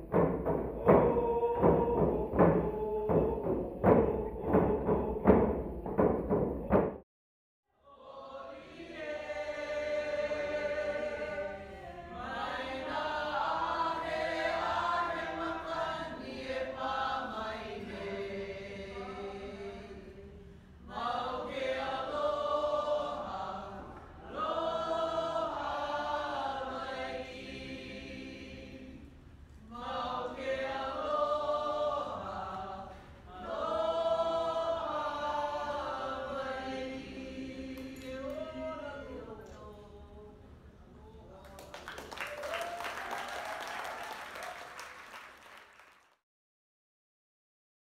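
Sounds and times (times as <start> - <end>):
drum-backed music: 0.0 - 7.0.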